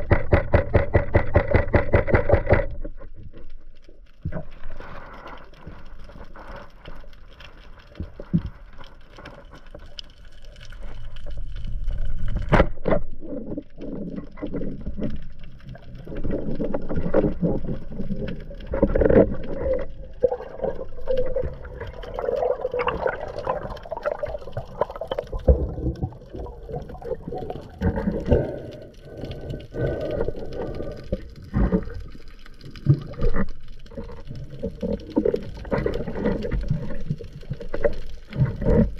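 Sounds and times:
water gurgling underwater: 10.7s - 38.9s.

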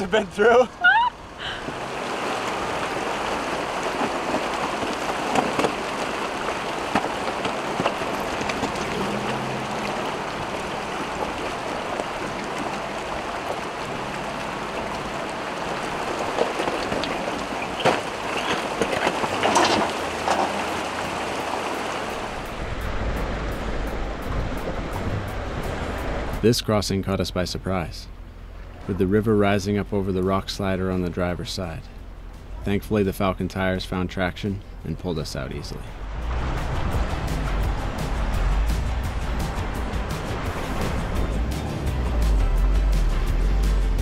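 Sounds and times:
water splashing around tyres: 0.0s - 26.4s, 36.0s - 42.4s.

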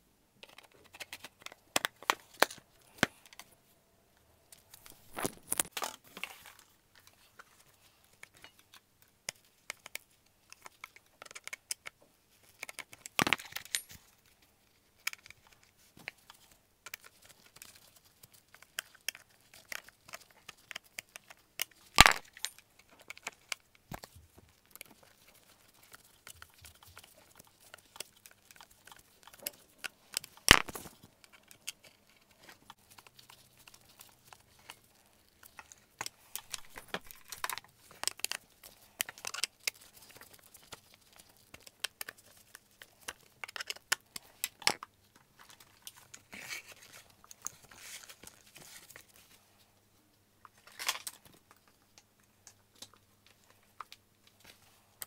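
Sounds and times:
screwdriver clicks and rustles: 18.7s - 42.2s.

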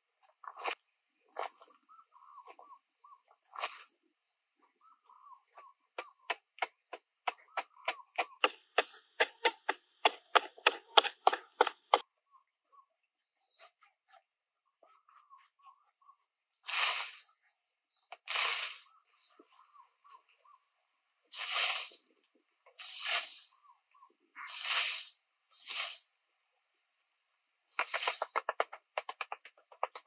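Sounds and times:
faint chirping: 0.0s - 8.5s
shovel scraping soft earth: 0.4s - 1.8s, 3.4s - 3.9s, 16.6s - 17.3s, 18.3s - 18.9s, 21.3s - 22.0s, 24.4s - 26.1s, 27.7s - 28.4s
soil flung aside: 18.3s - 18.9s, 21.3s - 22.0s, 27.7s - 28.4s.

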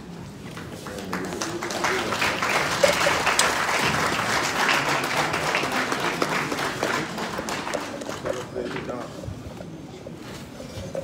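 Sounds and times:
audience applauding: 0.5s - 8.9s.

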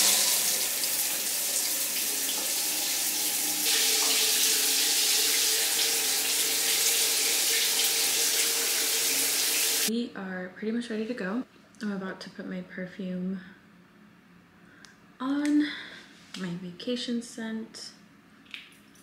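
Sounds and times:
shower water running: 0.0s - 9.9s.

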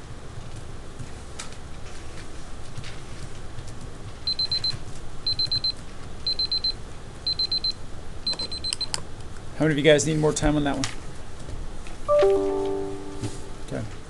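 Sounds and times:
timer alarm beeping: 4.3s - 4.7s, 5.3s - 5.7s, 6.3s - 8.8s.

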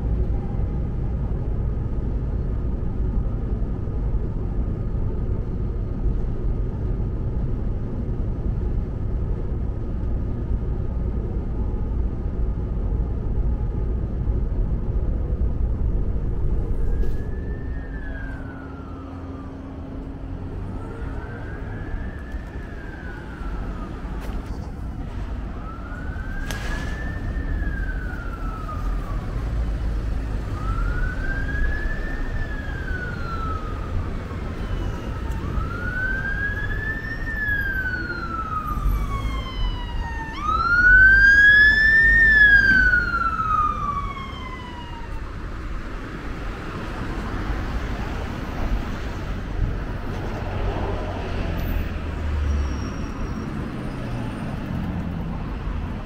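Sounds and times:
train low rumble: 0.0s - 41.2s, 42.0s - 52.3s
siren wailing: 16.2s - 24.8s, 25.4s - 48.1s.

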